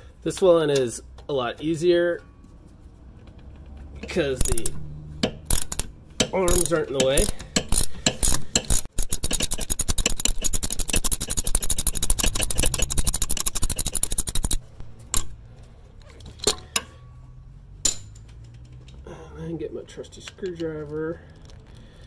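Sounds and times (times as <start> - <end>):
socket ratchet clicking: 4.0 - 15.4.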